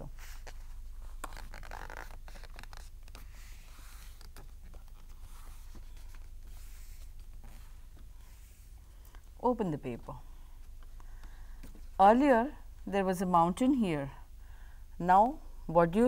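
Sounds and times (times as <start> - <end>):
light paper clicks and crinkles: 0.2 - 8.4
paper rustling on a tabletop: 0.2 - 8.7.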